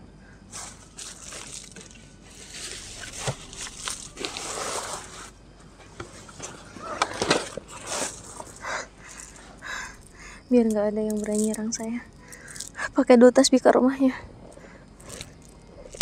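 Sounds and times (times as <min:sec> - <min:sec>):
tent fabric rustling: 0:00.5 - 0:05.4, 0:06.0 - 0:10.1.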